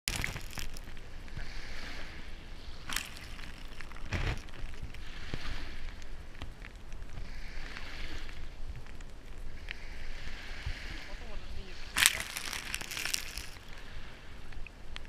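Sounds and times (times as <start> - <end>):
sharp water splashes: 0.0 - 1.1, 2.7 - 5.8, 11.8 - 14.0
surf waves washing on sand: 0.0 - 15.0.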